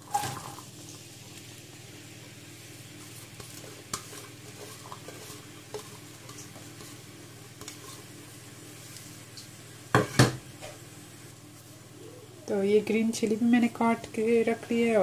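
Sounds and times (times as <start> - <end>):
onions sizzling in oil: 0.0 - 15.0
wooden spoon scraping pot: 3.2 - 8.2.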